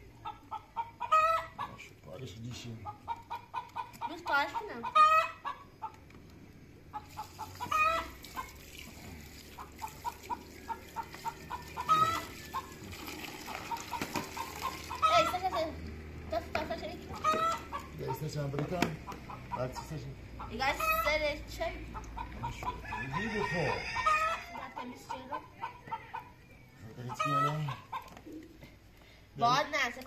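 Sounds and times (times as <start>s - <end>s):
chicken clucking: 0.1s - 2.2s, 2.8s - 6.0s, 6.9s - 8.6s, 9.6s - 12.8s, 17.1s - 21.3s, 21.9s - 28.6s
chicken squawking: 0.2s - 1.8s, 2.8s - 6.0s, 6.9s - 8.6s, 9.5s - 15.8s, 17.1s - 18.3s, 19.1s - 21.3s, 21.9s - 26.3s, 27.0s - 28.5s.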